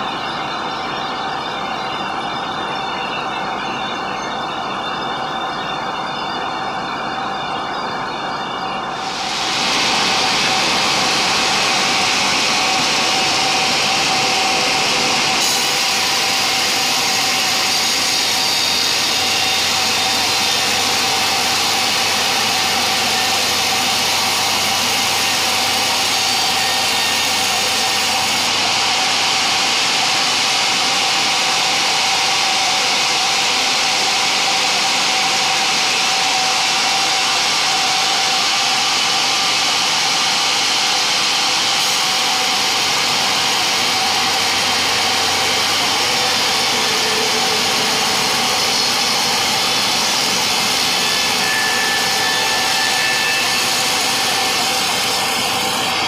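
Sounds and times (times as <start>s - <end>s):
band saw cutting log: 9.0s - 28.6s, 41.7s - 56.0s.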